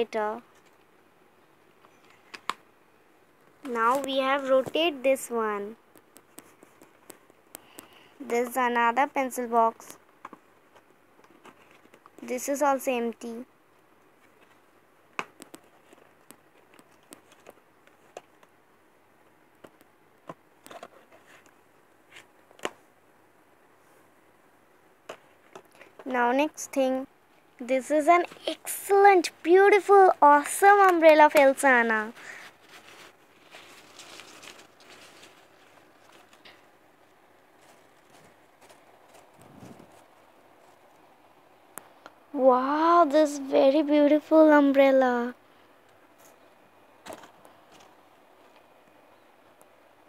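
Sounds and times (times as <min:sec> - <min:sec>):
pencil boxes clicking and tapping: 0:01.8 - 0:02.6, 0:05.7 - 0:08.6, 0:09.7 - 0:12.4, 0:14.2 - 0:18.6, 0:19.5 - 0:22.8, 0:25.0 - 0:26.2
umbrella clicks and rustles: 0:32.0 - 0:41.1.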